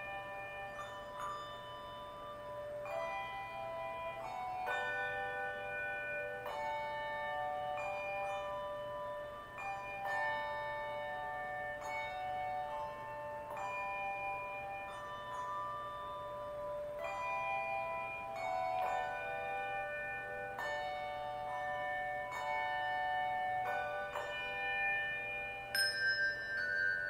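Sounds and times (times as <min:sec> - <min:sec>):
handbell choir playing: 0:00.0 - 0:27.0.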